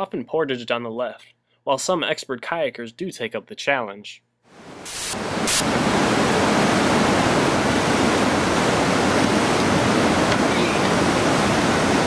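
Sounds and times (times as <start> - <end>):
whitewater rushing: 5.1 - 12.0.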